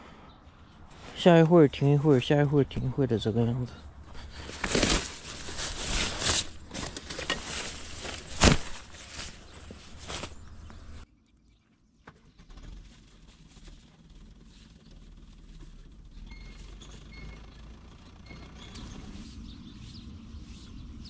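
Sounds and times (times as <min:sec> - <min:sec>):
bird chirps: 0:16.1 - 0:21.0.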